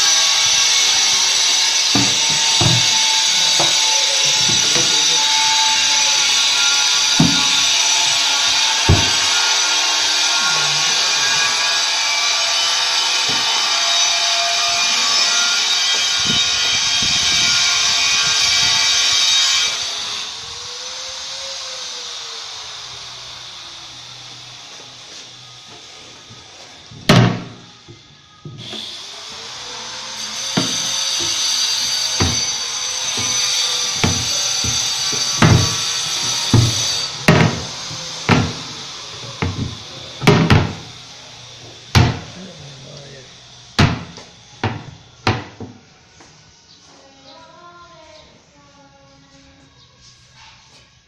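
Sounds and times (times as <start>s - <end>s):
power tool whining: 0.0s - 45.8s
wooden cabinet doors knocking: 1.9s - 3.0s, 7.2s - 7.5s, 8.9s - 9.2s, 32.2s - 32.5s, 34.0s - 37.7s, 38.3s - 38.7s, 39.4s - 40.8s, 41.9s - 42.3s, 43.8s - 45.7s.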